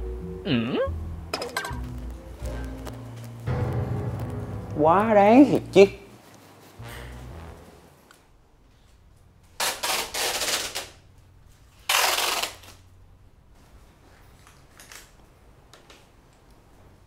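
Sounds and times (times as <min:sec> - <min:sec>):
tape ripped off roll: 0:09.5 - 0:11.0, 0:11.8 - 0:12.8
scissors cutting tape: 0:11.8 - 0:12.8.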